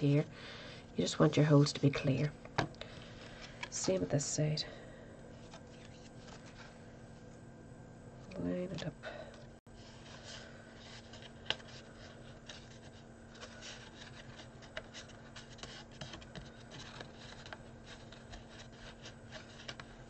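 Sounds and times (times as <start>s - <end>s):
low hum: 0.0s - 20.0s
card rubbing and rustling: 5.3s - 7.0s, 9.8s - 20.0s.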